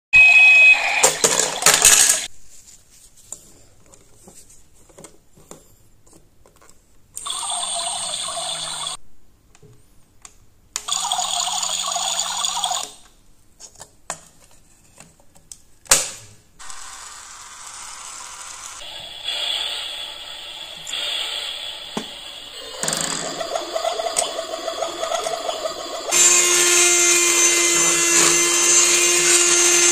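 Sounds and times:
toy appliances buzzing: 0:00.3 - 0:02.3, 0:07.2 - 0:09.0, 0:10.8 - 0:13.0, 0:16.6 - 0:29.9.

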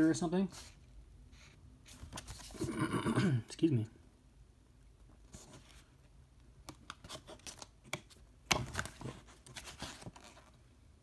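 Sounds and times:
paper pages flipping: 0:01.9 - 0:02.7, 0:06.7 - 0:10.6.

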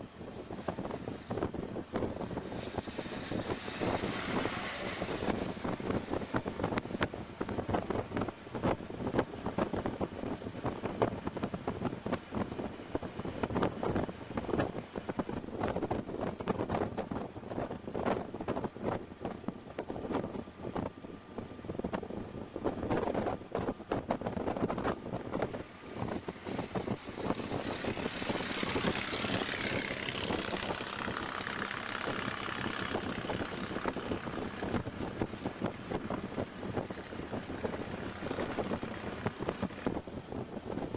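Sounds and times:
road noise: 0:00.0 - 0:40.9
wind buffeting microphone: 0:00.0 - 0:40.9
car engine running: 0:25.2 - 0:40.8.

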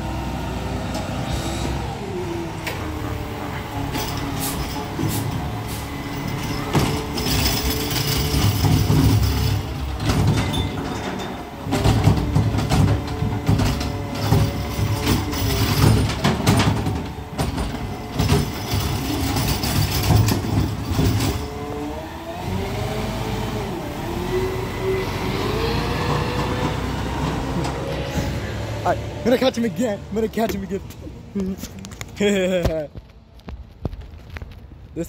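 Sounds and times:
truck engine and hydraulics: 0:00.0 - 0:34.9
garbage truck clanks and bangs: 0:02.6 - 0:21.8, 0:25.9 - 0:28.5.

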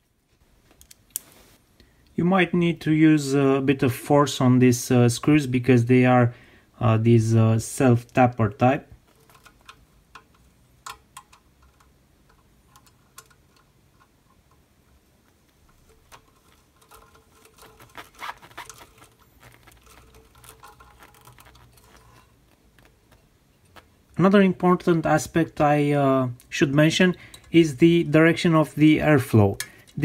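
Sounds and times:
screwdriver clicking and scraping: 0:15.7 - 0:23.9.

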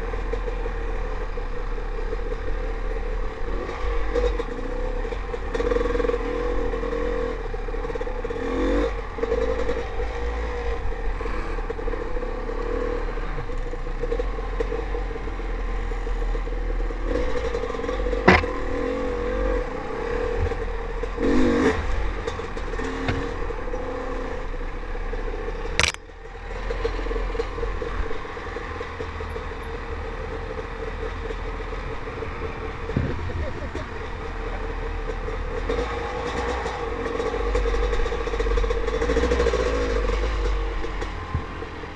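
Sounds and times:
dirt bike engine at low speed: 0:00.0 - 0:41.9
sharp knock: 0:18.2 - 0:18.6
bike clattering over rocks: 0:25.8 - 0:26.0.

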